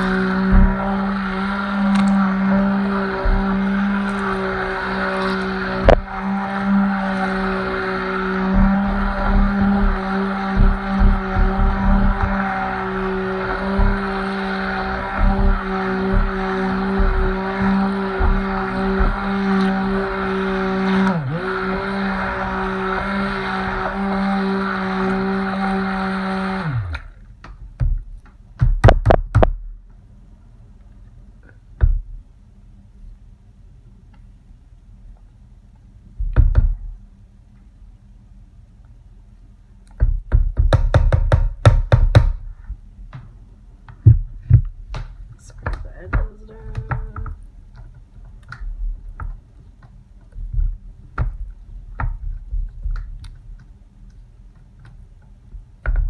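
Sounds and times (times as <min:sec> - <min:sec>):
stick blender motor running: 0:00.0 - 0:27.2
sharp loud knocks: 0:40.0 - 0:42.4.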